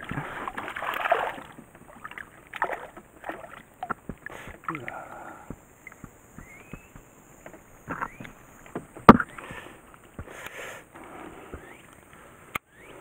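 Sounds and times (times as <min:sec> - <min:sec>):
fish splashing in water: 0:00.0 - 0:05.0.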